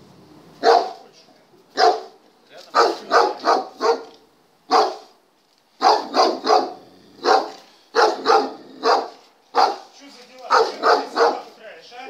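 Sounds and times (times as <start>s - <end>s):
dog barking: 0.6s - 1.0s, 1.7s - 5.2s, 5.8s - 9.9s, 10.5s - 11.5s.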